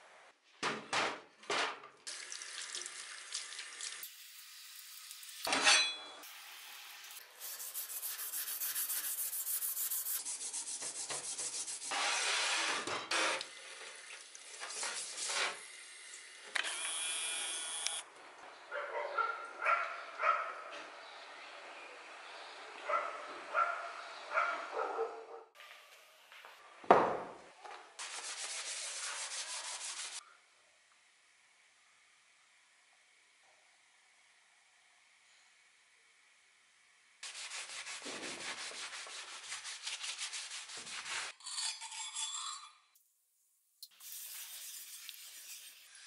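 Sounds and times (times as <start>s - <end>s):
tap water running: 2.1s - 5.5s, 13.4s - 16.5s, 43.9s - 46.0s.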